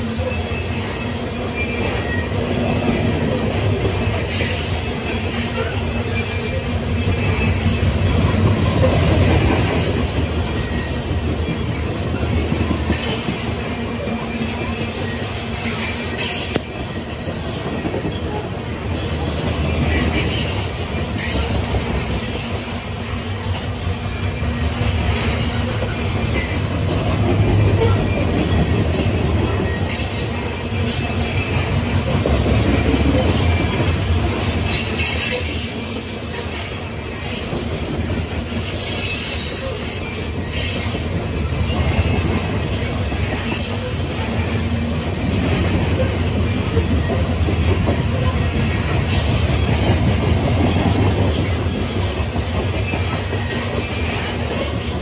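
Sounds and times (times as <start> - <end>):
high wheel squeals: 0.0 - 31.9
train wheels rumbling on rails: 0.0 - 55.0.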